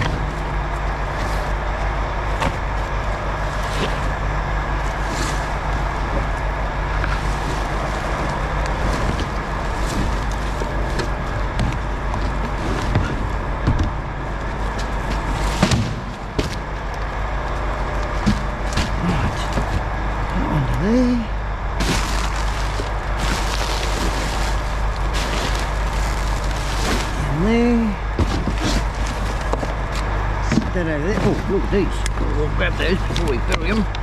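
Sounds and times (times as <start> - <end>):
vehicle engine humming: 0.0 - 34.0
rubbish shifted in a bin: 21.8 - 27.3.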